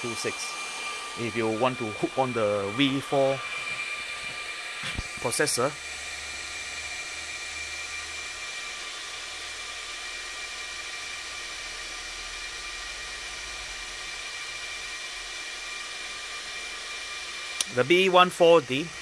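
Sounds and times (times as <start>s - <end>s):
server cooling fans whining: 0.0s - 19.0s.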